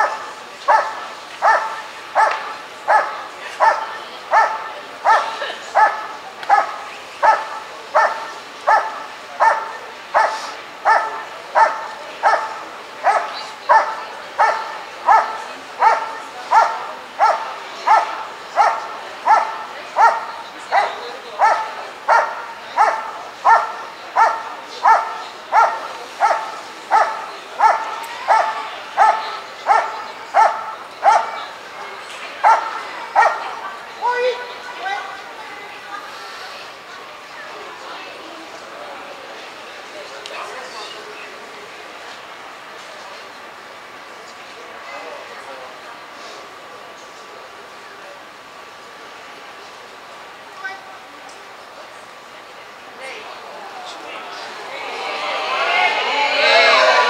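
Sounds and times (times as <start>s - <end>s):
dog barking: 0.0s - 31.4s, 32.4s - 33.5s.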